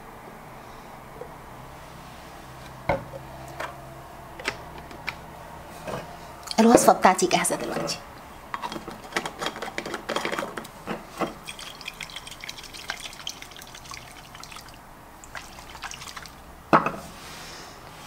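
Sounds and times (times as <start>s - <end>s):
liquid sloshing in glass jar: 11.2s - 16.4s.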